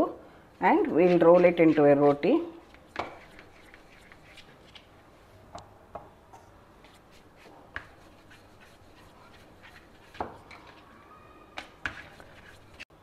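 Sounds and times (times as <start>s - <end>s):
rolling pin rubbing dough: 0.7s - 4.7s, 6.8s - 10.8s, 11.6s - 12.9s.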